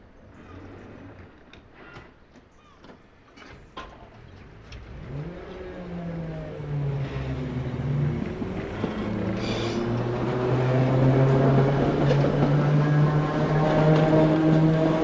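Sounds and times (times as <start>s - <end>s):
train traction motors whining: 4.8s - 15.0s.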